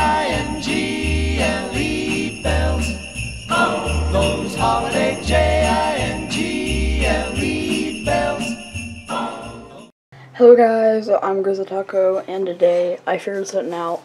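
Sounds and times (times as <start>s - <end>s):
sleigh bells jingling: 0.0s - 9.9s
festive music: 0.0s - 10.0s.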